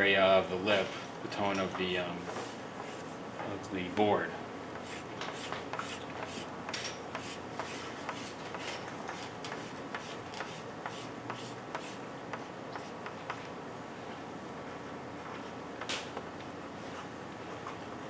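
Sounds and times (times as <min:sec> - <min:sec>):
pastel scratching on board: 0:04.8 - 0:06.5, 0:09.1 - 0:13.2.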